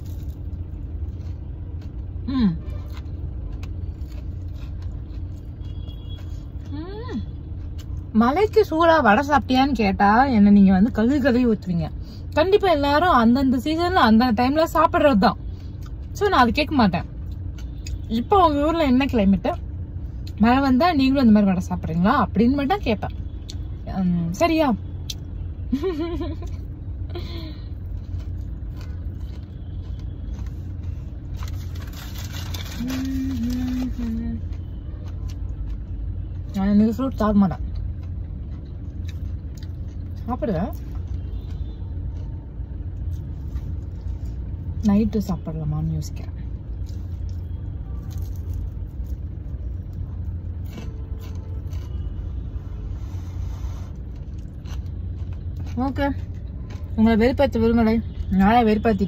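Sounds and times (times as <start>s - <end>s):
crunchy chewing: 0.0s - 8.1s, 27.7s - 36.5s, 37.7s - 44.7s, 46.5s - 57.0s
car rumble from inside cabin: 0.0s - 59.0s.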